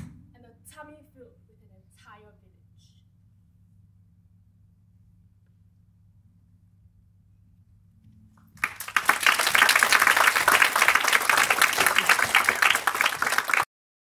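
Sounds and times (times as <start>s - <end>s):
faint low hum: 0.1s - 13.6s
audience applause: 8.5s - 13.7s.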